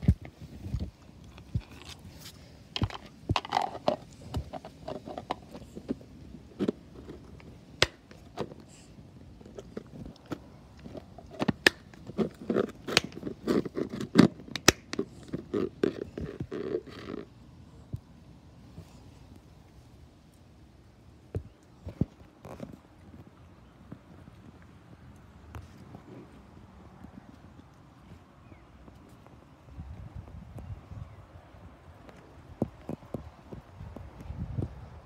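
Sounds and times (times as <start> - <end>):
plastic scraping on brick: 0.8 - 17.3.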